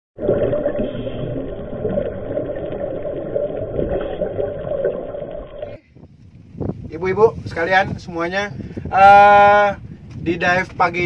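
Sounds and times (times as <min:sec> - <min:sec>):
underwater water rushing: 0:00.2 - 0:05.8.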